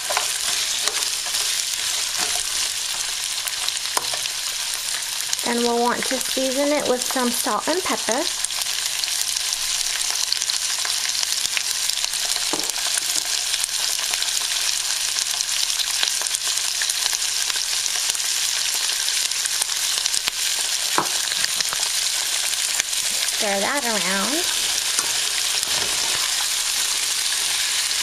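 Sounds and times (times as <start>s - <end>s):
stirring in a wok: 0.0s - 5.4s
beans sizzling in hot oil: 0.0s - 28.0s.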